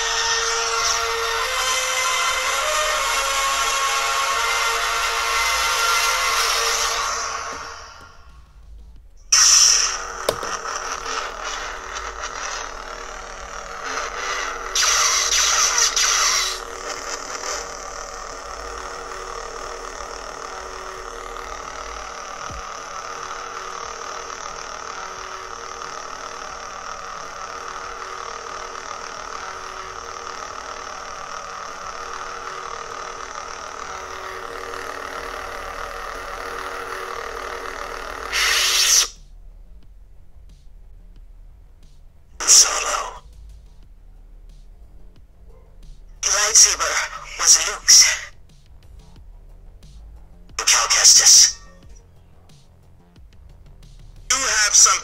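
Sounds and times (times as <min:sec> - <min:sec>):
lightsaber hum: 0:00.0 - 0:53.2, 0:53.8 - 0:55.0.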